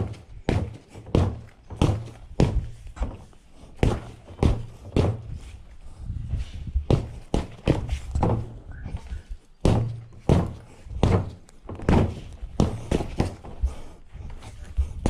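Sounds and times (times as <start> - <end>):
gloves punching a punching bag: 0.0 - 3.2, 3.8 - 5.4, 6.8 - 8.0, 9.6 - 13.8.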